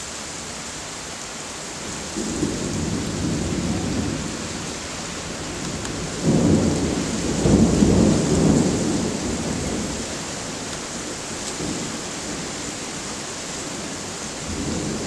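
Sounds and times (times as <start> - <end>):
steady rain: 0.0 - 15.0
thunder rumbling: 2.2 - 12.7, 14.4 - 15.0.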